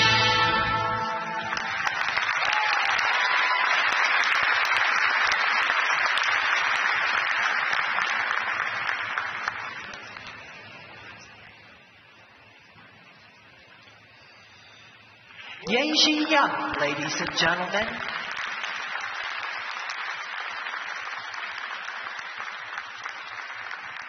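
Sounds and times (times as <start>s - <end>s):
music held final chord: 0.0s - 1.7s
crowd applauding: 0.0s - 11.7s, 15.4s - 24.0s.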